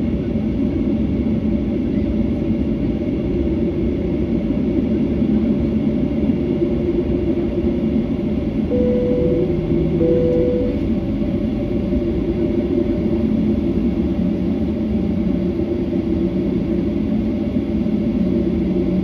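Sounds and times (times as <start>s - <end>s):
jet engines rumbling in cabin: 0.0s - 19.0s
brief steady tone: 8.7s - 10.9s.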